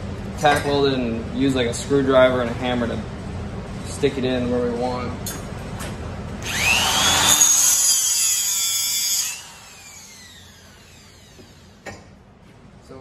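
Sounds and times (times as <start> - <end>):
power tool whining: 6.4 - 11.9.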